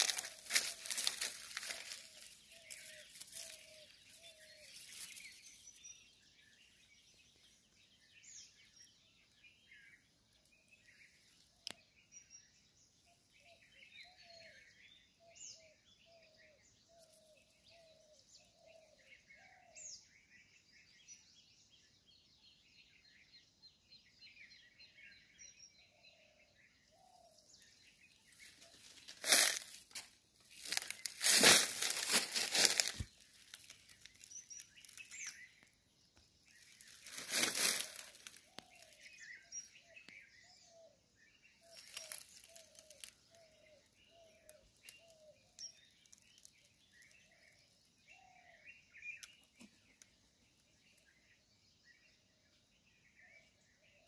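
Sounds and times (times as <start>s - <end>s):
rustling crunch of dry leaves: 0.0s - 6.4s, 28.2s - 35.7s, 36.5s - 39.4s, 41.6s - 47.7s
small birds chirping: 0.0s - 54.0s.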